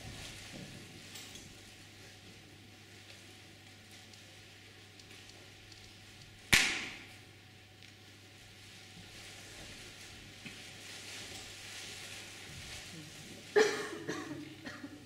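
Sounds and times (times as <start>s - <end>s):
sharp loud bang: 6.5s - 7.1s.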